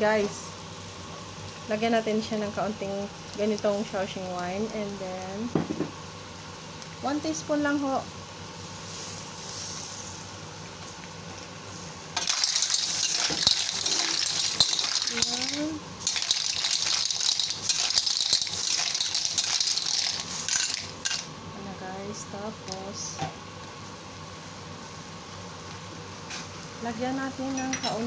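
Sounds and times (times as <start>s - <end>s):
clams sizzling in a wok: 0.0s - 28.0s
shells clinking against wok: 12.2s - 21.3s.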